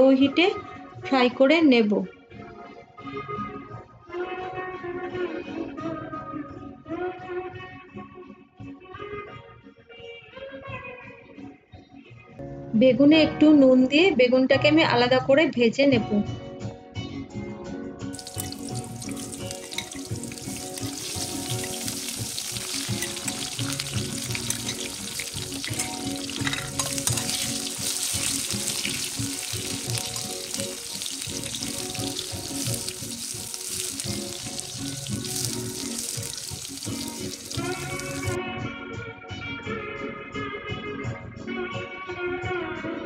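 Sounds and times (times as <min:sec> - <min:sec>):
eggplant sizzling in oil: 0:18.2 - 0:38.4.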